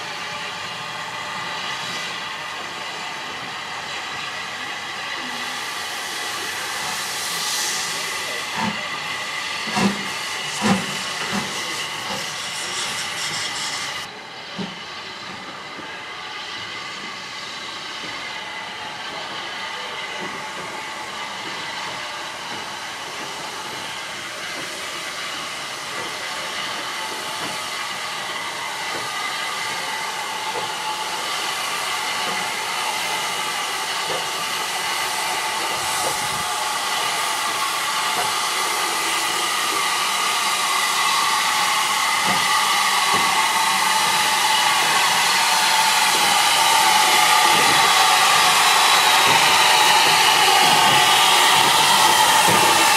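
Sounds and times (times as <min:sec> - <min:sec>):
steam locomotive hissing steam: 0:00.0 - 0:52.9.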